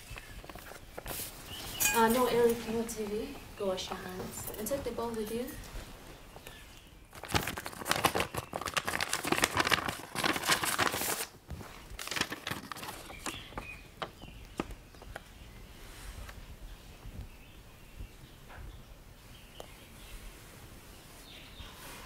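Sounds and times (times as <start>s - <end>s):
paper rustling and crackling: 0.0s - 15.4s.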